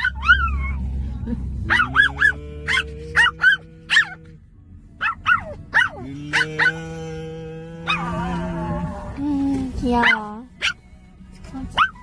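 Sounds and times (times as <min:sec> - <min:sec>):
puppy yipping and whining: 0:00.0 - 0:00.9, 0:01.7 - 0:04.2, 0:05.0 - 0:06.7, 0:10.0 - 0:10.8, 0:11.8 - 0:12.0
puppy howling: 0:01.7 - 0:04.2, 0:05.3 - 0:07.0, 0:07.8 - 0:08.9.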